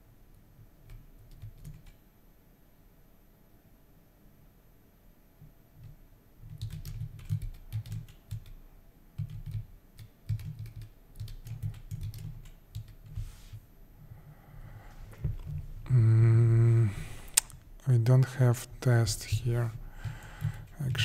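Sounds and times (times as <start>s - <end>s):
typing on computer keyboard: 0.8s - 2.0s, 5.8s - 8.6s, 9.2s - 13.2s, 20.0s - 21.0s.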